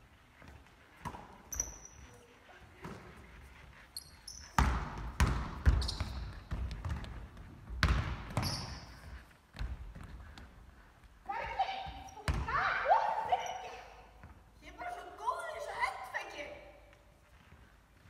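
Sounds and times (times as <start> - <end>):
sneakers squeaking on floor: 0.2 - 15.9
basketball bouncing: 1.0 - 2.0, 4.4 - 10.5, 11.4 - 12.7.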